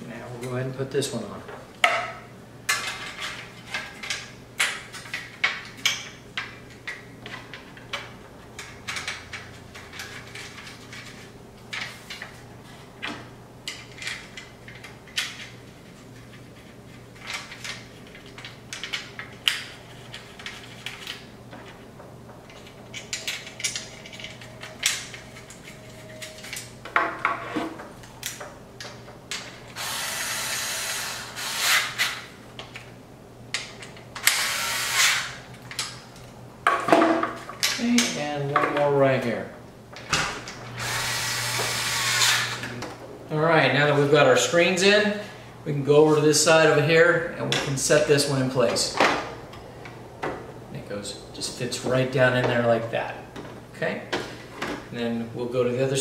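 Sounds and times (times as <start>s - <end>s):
small parts clicking and knocking: 22.4s - 26.7s.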